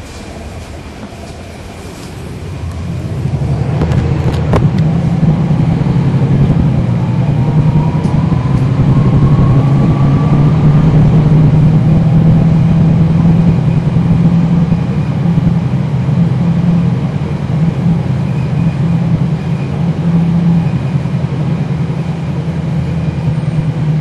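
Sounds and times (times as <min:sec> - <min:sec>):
bus diesel engine drone: 0:00.0 - 0:24.0
transmission whistle rising: 0:05.2 - 0:15.5.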